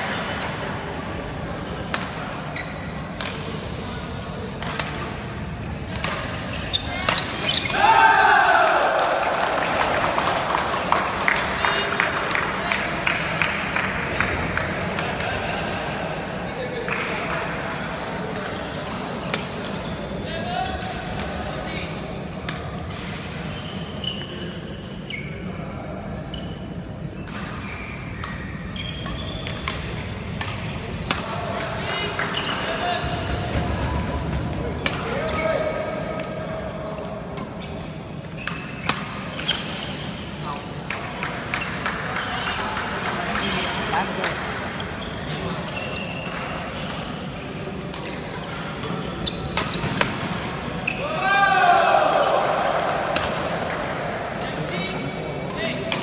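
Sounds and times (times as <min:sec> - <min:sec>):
sports hall hum: 0:00.0 - 0:56.0
rackets hitting shuttlecock: 0:01.8 - 0:03.7, 0:04.6 - 0:07.8, 0:27.2 - 0:35.2, 0:37.3 - 0:44.6, 0:45.6 - 0:50.7.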